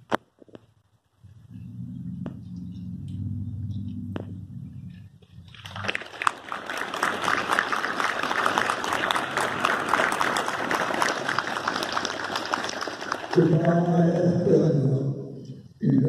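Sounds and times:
crowd applauding: 0:05.5 - 0:14.4.

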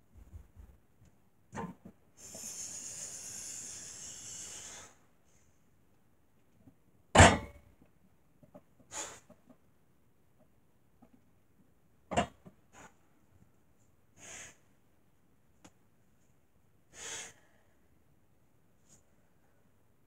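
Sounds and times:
hissing breath: 0:02.2 - 0:05.0, 0:16.9 - 0:17.6
short sharp breath: 0:02.2 - 0:05.5, 0:08.9 - 0:09.4, 0:14.2 - 0:14.6, 0:16.9 - 0:17.8.

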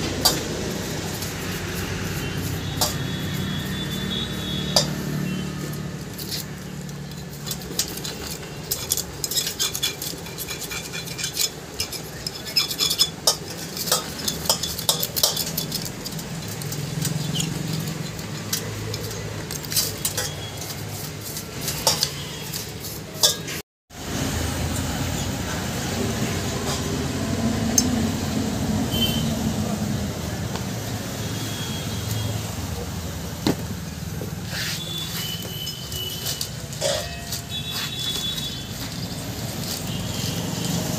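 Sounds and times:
metal parts clinking in a steel basin: 0:00.0 - 0:23.6, 0:34.8 - 0:40.9.

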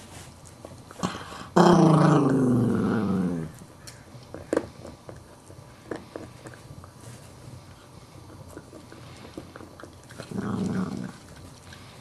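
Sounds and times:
dog growling: 0:01.0 - 0:03.6, 0:07.9 - 0:12.0
teeth gnawing bone: 0:03.9 - 0:12.0.

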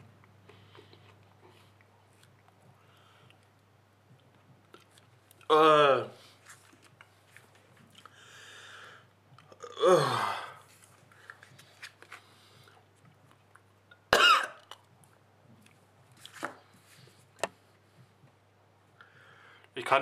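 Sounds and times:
man coughing and retching: 0:14.1 - 0:14.7.

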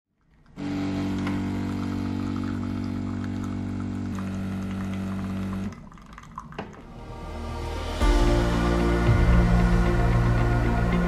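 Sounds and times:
coffee machine humming: 0:00.6 - 0:06.5.

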